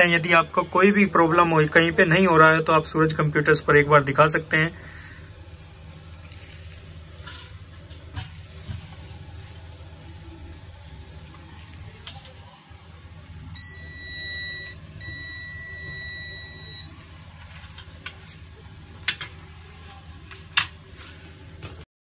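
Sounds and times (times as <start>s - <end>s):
steady low hum: 0.0s - 21.8s
multimeter continuity beeps: 13.5s - 17.0s.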